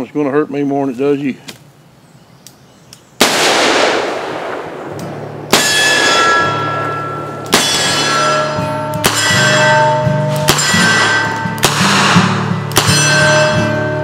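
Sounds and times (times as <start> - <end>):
revolver gunshot: 3.2 - 13.4
sharp hits with ringing tones: 4.4 - 14.0
background music: 5.2 - 14.0.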